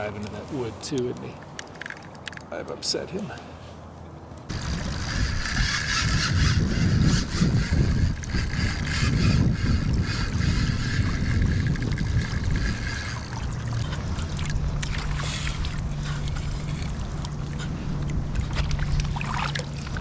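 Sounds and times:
water splashing and sloshing: 10.9s - 20.0s.

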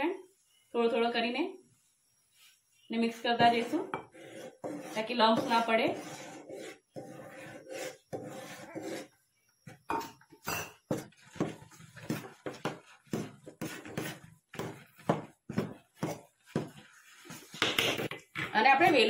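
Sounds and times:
spoon scraping a metal pot: 3.0s - 12.3s.

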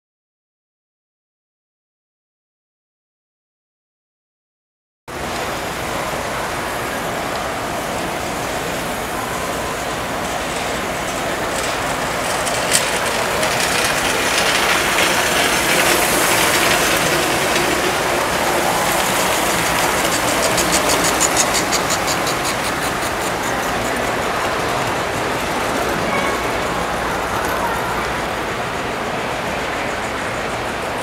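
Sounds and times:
toy train motors whirring: 8.2s - 30.9s
rapid clicks: 11.1s - 26.1s.

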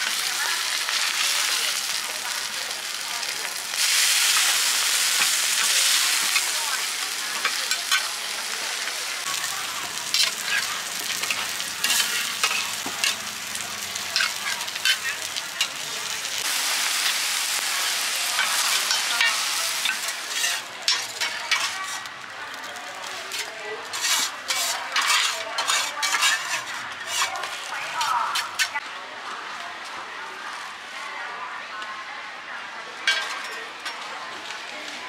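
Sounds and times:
omelette sizzling in oil: 0.0s - 28.8s
metal spatulas scraping pan: 10.0s - 13.3s, 14.2s - 15.8s, 18.4s - 22.1s, 23.0s - 28.8s.

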